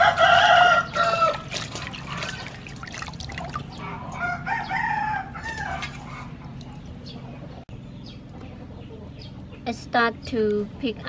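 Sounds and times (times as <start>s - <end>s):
rooster crowing: 0.0s - 1.6s, 4.0s - 6.3s
hands splashing in water: 0.9s - 3.8s.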